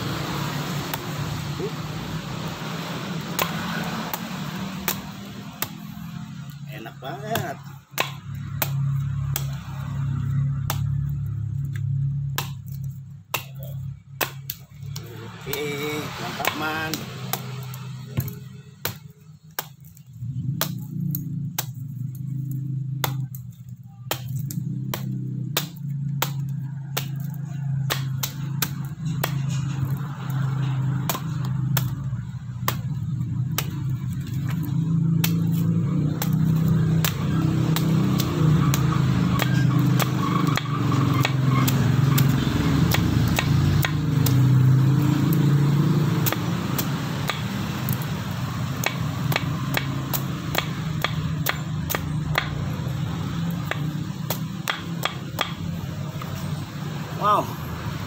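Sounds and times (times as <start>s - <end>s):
knife chopping coconut husk: 0.0s - 56.6s.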